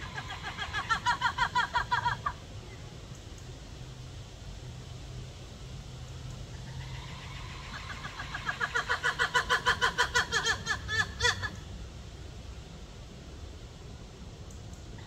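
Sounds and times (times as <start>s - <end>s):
lemur barking calls: 0.0s - 2.4s, 6.5s - 11.6s.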